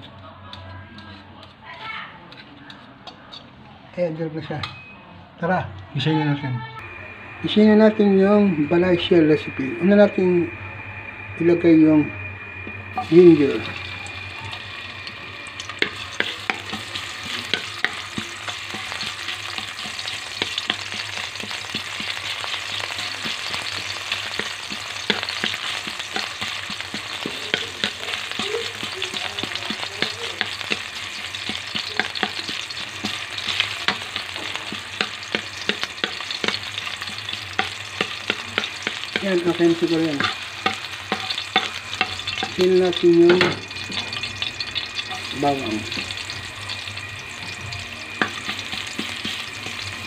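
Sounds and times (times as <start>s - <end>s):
spatula scraping metal pan: 0.0s - 3.6s
food sizzling in hot oil: 6.8s - 50.0s.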